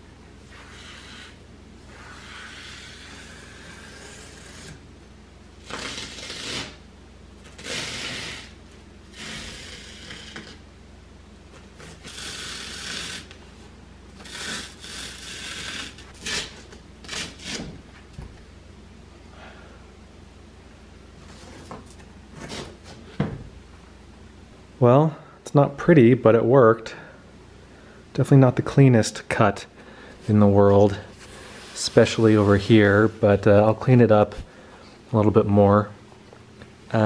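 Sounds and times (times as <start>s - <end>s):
knife cutting through foam: 0.5s - 4.8s, 5.6s - 6.8s, 7.5s - 10.6s, 11.8s - 13.3s, 14.2s - 17.7s.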